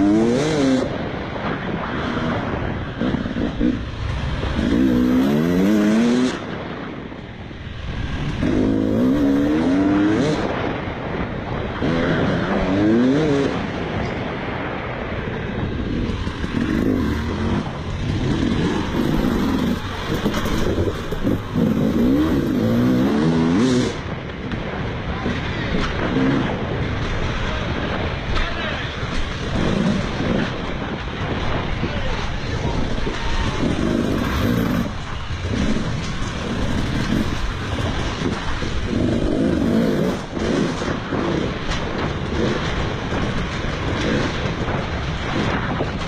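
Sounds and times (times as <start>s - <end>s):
motocross bike engine revving: 0.0s - 1.1s, 1.8s - 6.7s, 7.7s - 10.7s, 11.7s - 13.8s, 15.8s - 24.0s, 25.2s - 26.6s, 32.5s - 45.6s.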